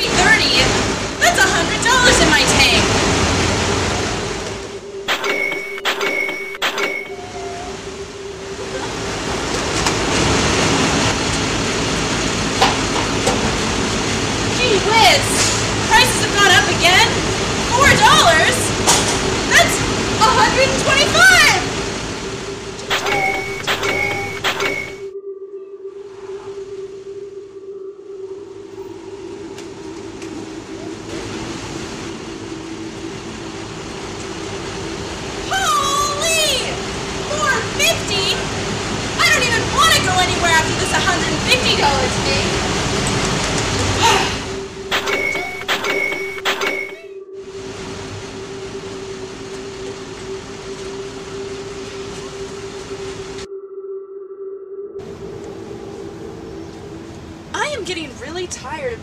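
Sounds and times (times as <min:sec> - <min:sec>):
traffic noise: 0:00.0 - 0:25.0, 0:28.8 - 0:46.5, 0:55.0 - 0:59.0
vehicle low rumble: 0:26.2 - 0:45.6, 0:55.0 - 0:59.0.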